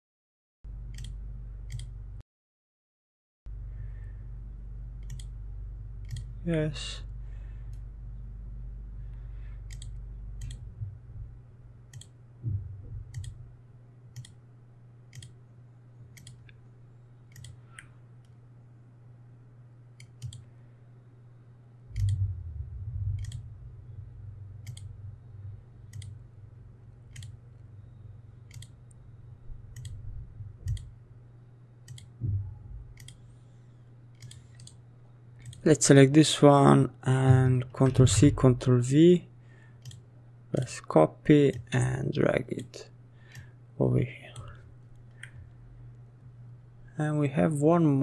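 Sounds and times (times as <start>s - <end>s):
low steady hum: 0.7s - 2.2s, 3.5s - 48.0s.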